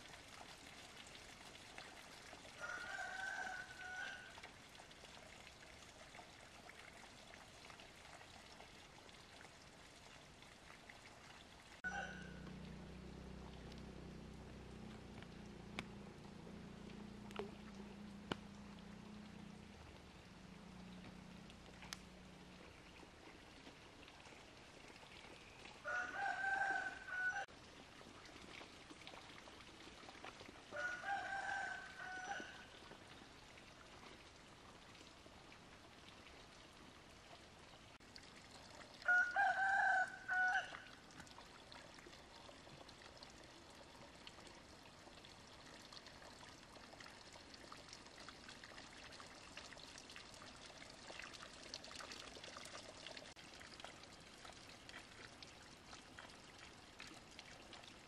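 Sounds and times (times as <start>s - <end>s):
faint trickle of water: 0.0s - 58.0s
rooster crowing: 2.6s - 4.3s, 11.8s - 12.4s, 25.8s - 27.5s, 30.7s - 32.7s, 39.0s - 40.8s.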